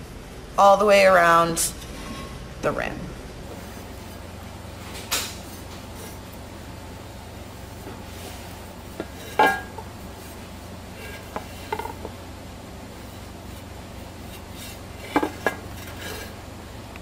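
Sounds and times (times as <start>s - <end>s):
brush on platter rim: 3.5s - 4.3s, 7.7s - 12.0s
ceramic platter clinking and knocking: 9.0s - 9.9s.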